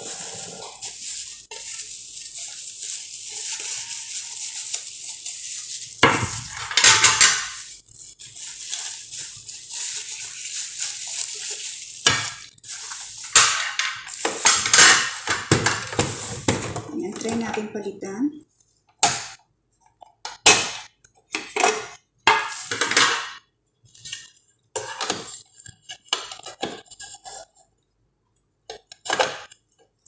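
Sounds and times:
plastic wrapping crinkling: 0:00.0 - 0:17.9.

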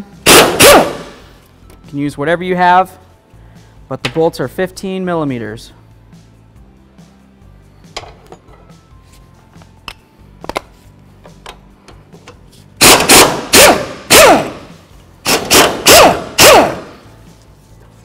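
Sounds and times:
pneumatic impact wrench bursts: 0:00.3 - 0:01.2, 0:12.8 - 0:17.0.

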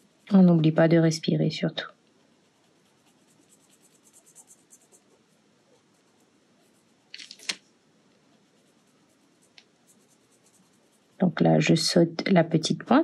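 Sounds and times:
pen scratching on paper: 0:02.2 - 0:07.1, 0:08.4 - 0:11.2.

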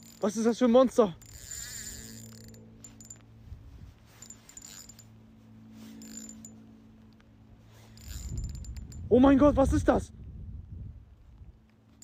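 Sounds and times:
fishing reel clicks: 0:00.0 - 0:03.2, 0:04.2 - 0:05.1, 0:05.8 - 0:06.6, 0:07.8 - 0:09.0.

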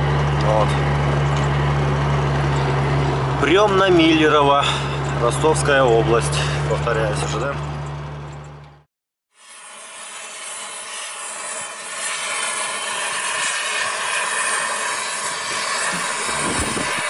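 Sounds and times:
gas torch hissing: 0:09.4 - 0:17.0.

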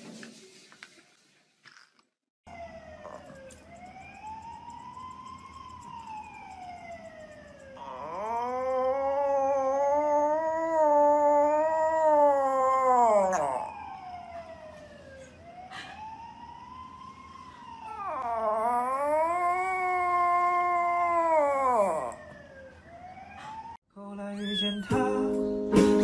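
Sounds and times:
faint rising and falling wail: 0:02.6 - 0:23.8
dog howling: 0:07.8 - 0:13.8, 0:17.9 - 0:22.2.

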